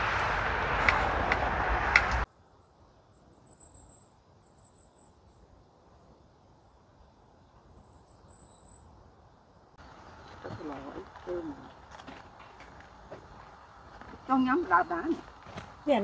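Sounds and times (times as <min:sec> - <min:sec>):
loud even rushing noise: 0:00.0 - 0:02.3
high-pitched insect trills: 0:02.3 - 0:12.1.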